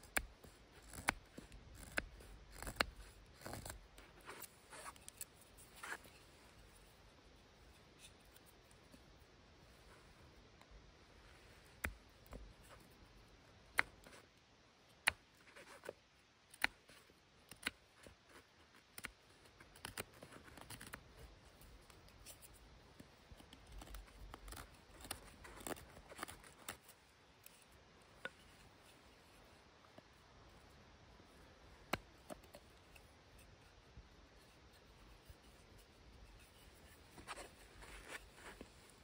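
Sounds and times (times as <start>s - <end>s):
knife shaving wooden stick: 0.0s - 7.0s, 15.0s - 30.4s, 31.8s - 39.0s.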